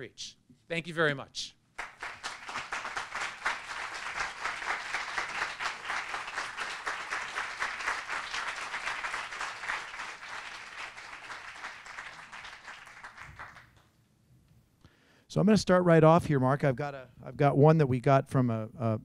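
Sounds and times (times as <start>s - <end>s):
audience applauding: 1.8s - 13.8s.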